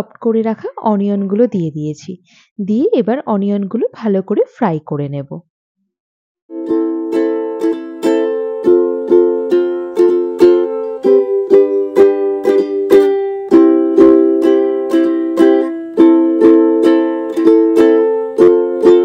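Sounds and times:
strummed string instrument chords: 6.5s - 19.0s.

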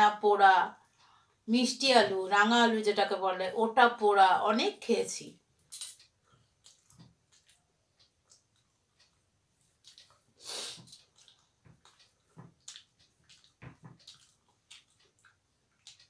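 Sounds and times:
mouth clicks and smacks: 5.6s - 16.0s.

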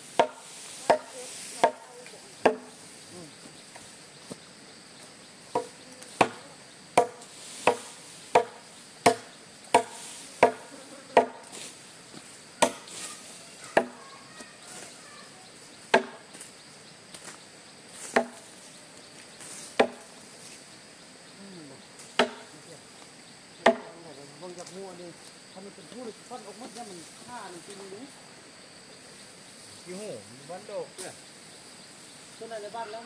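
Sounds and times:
blade chopping wood: 7.0s - 10.6s, 12.6s - 12.9s, 15.9s - 16.3s, 18.1s - 18.4s, 22.2s - 22.5s.

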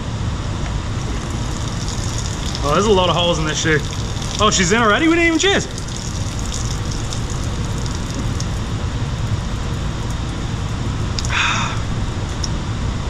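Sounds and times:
liquid spattering onto concrete: 1.0s - 11.4s.

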